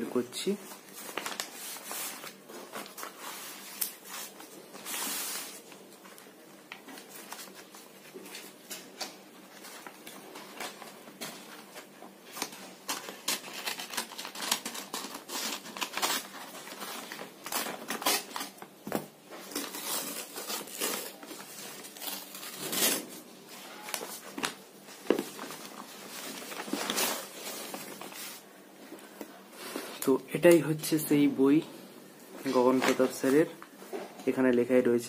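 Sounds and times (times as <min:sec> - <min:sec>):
paper tearing and crinkling: 0:00.9 - 0:05.7, 0:11.7 - 0:18.6, 0:19.4 - 0:28.4
scissors cutting paper envelope: 0:12.3 - 0:18.6.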